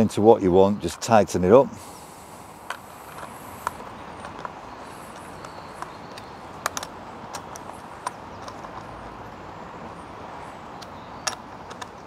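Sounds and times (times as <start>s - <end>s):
background hiss: 0.0s - 12.0s.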